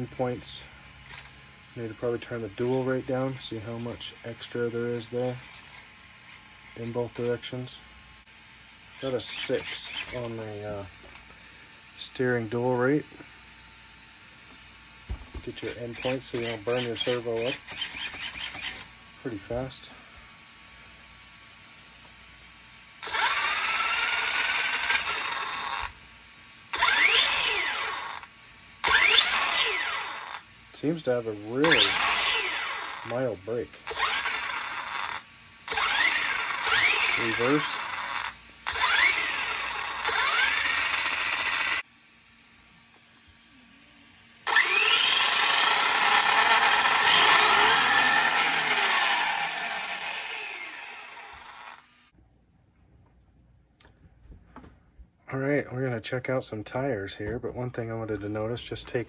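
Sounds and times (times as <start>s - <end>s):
electric motor whining: 0.0s - 7.8s, 8.8s - 11.3s, 15.1s - 18.9s, 23.0s - 26.0s, 26.7s - 41.9s, 42.9s - 52.1s.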